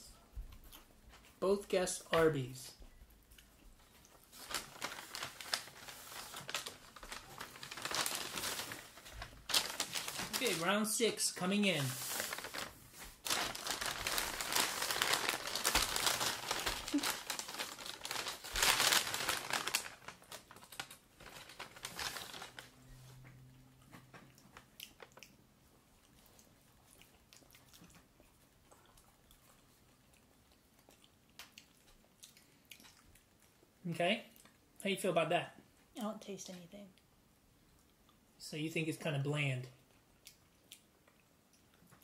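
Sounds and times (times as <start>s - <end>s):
paper bags crinkling: 4.3s - 22.8s
french fries crunching: 12.0s - 22.8s.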